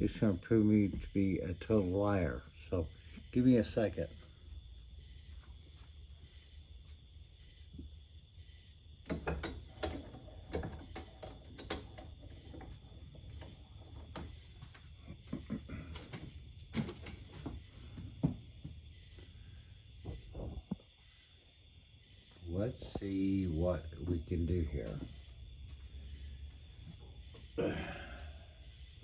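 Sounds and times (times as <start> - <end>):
metal tools clinking and rattling: 9.1 - 12.8.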